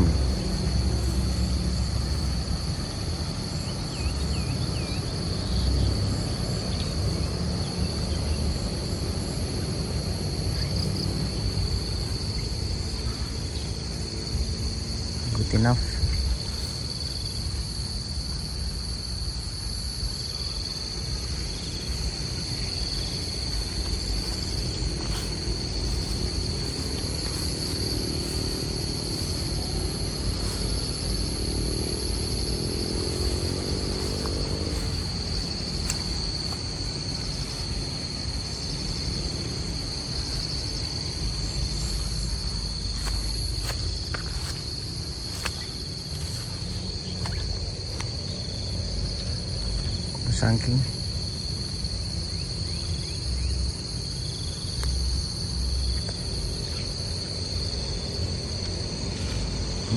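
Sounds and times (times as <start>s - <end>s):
high-pitched insect chorus: 0.0s - 59.9s.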